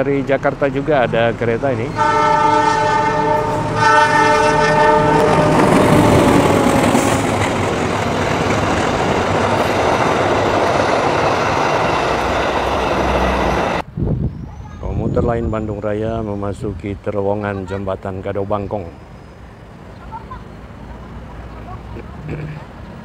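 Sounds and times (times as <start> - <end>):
train wheels rumbling on rails: 0.0 - 13.9
train air horn blasts: 1.9 - 6.9.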